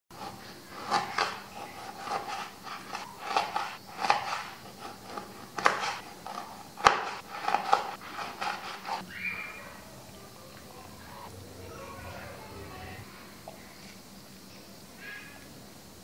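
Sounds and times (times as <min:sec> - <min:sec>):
knife slicing limes: 0:00.2 - 0:09.0.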